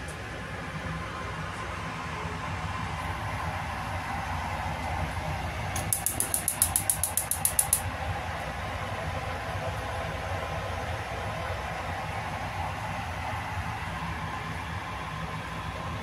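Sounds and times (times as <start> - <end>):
low kitchen hum: 0.0 - 16.0
sharp high-pitched ticks: 5.8 - 7.8.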